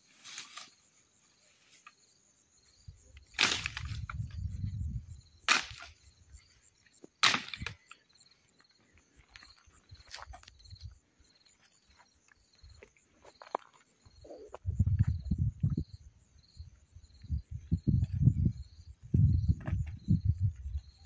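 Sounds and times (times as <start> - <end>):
insects chirping: 0.0 - 21.0
dry branches snapping: 3.4 - 4.2, 5.5 - 6.0, 7.2 - 7.9.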